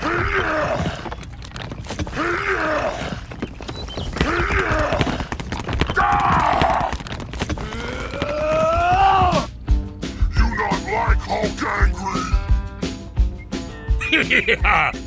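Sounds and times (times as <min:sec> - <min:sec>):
gruff voice groaning with effort: 0:00.0 - 0:01.2, 0:02.0 - 0:03.3, 0:07.5 - 0:09.5, 0:10.2 - 0:12.5.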